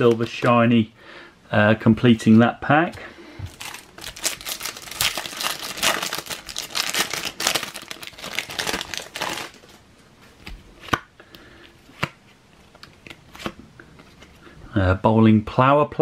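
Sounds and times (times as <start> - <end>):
plastic wrapper crinkling: 0.0 - 0.6, 3.5 - 9.8.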